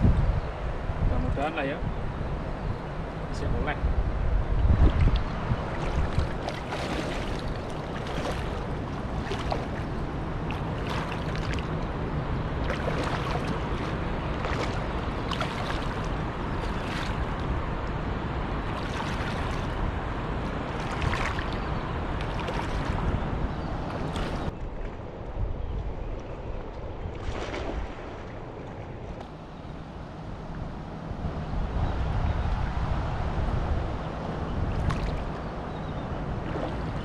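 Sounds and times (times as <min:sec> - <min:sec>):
wind buffeting microphone: 0:00.0 - 0:37.0
water splashing around legs: 0:04.8 - 0:12.0, 0:12.6 - 0:17.6, 0:18.6 - 0:19.8, 0:20.4 - 0:23.2, 0:23.8 - 0:25.0, 0:27.1 - 0:29.4, 0:34.7 - 0:35.4, 0:36.4 - 0:37.0.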